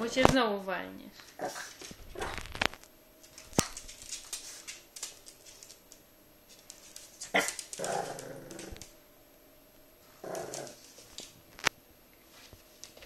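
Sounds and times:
puppy claws clicking on wooden floor: 1.7 - 8.9, 10.3 - 11.7.

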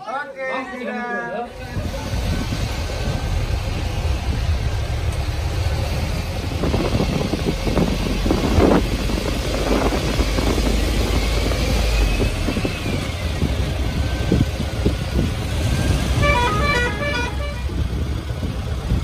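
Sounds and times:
engine rumble: 1.4 - 19.0
wind buffeting microphone: 1.5 - 19.0
musical car horn beeps: 16.1 - 17.8.

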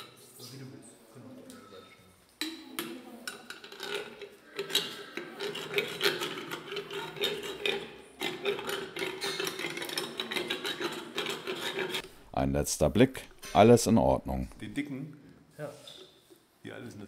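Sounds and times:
hand rasp scraping teeth: 3.7 - 12.1.

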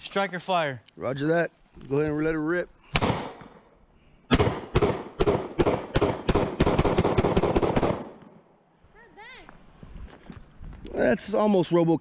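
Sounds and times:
pistol shots with echo: 2.9 - 3.4, 4.3 - 8.2.

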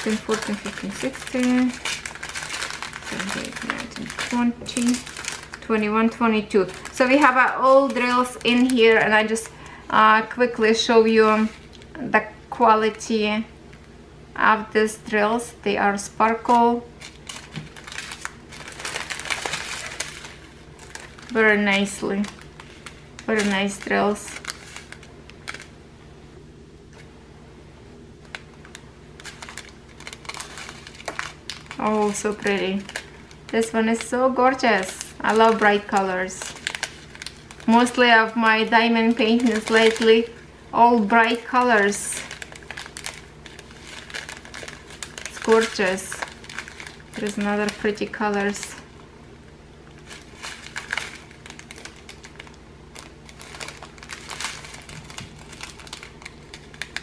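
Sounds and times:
tiny resin beads shifting: 0.0 - 5.6, 34.7 - 40.3
plastic bags crinkling: 0.0 - 12.0, 16.3 - 25.8, 28.2 - 49.0, 49.8 - 57.0
low steady hum: 0.0 - 57.0.

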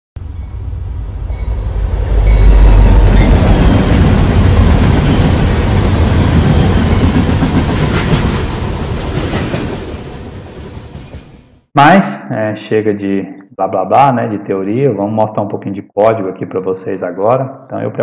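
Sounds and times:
passing train rumble: 0.2 - 11.7.

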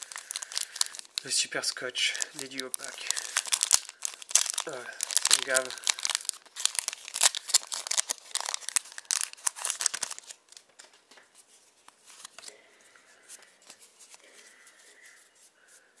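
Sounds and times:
foil wrapper tearing and crinkling: 0.0 - 10.6
cards rustling: 0.0 - 12.5, 13.3 - 15.1.

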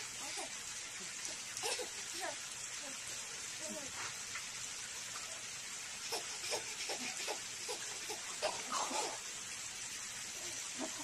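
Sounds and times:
baby laughing: 1.6 - 2.0, 6.1 - 9.2.

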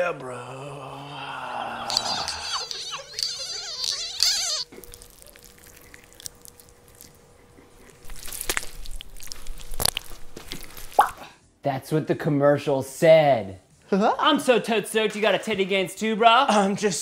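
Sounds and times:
faint steady hum: 0.0 - 10.9.

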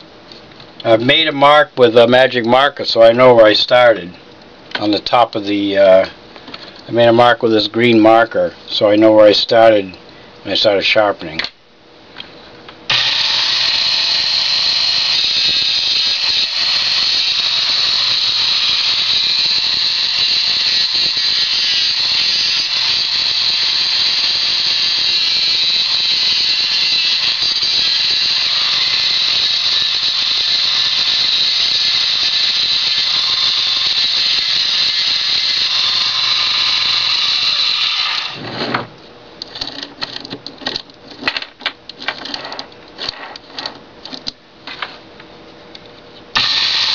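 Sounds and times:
grinding wheel whine: 12.9 - 38.9, 46.4 - 46.9.

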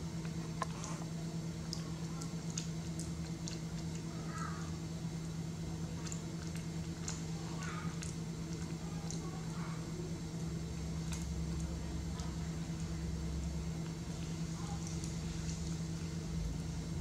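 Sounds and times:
steady low hum: 0.0 - 17.0
monkey chewing clicks and smacks: 1.7 - 4.1.

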